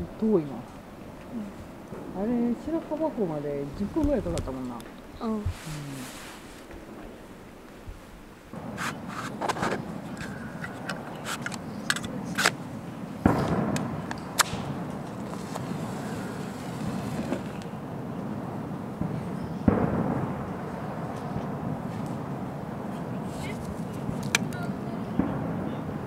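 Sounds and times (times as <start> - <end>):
match striking: 8.8 - 12.6, 13.4 - 17.7
camp gear clicking and scraping: 8.8 - 12.7, 13.4 - 17.7, 23.3 - 24.6.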